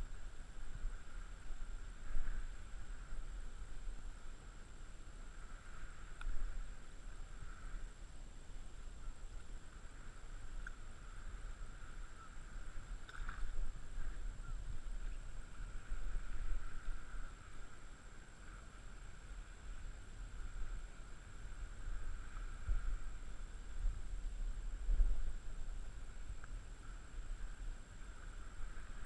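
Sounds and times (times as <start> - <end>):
small waves lapping: 0.0 - 29.0
wind on microphone: 0.0 - 29.0.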